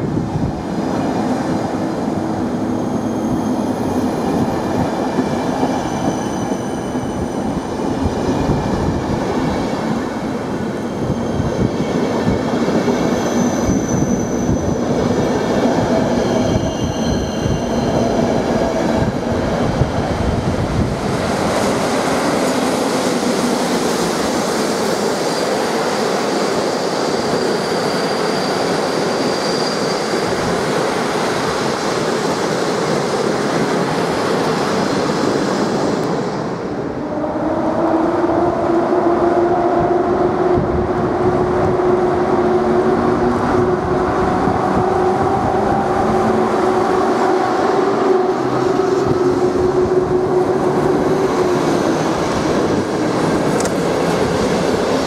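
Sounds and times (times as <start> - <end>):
train wheels rolling on rails: 37.6 - 55.0.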